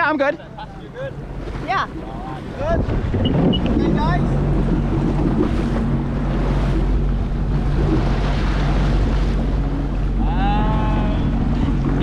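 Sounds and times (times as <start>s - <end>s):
jet ski engines idling: 0.0s - 12.0s
water slapping hulls: 0.0s - 12.0s
wind buffeting microphone: 0.0s - 12.0s.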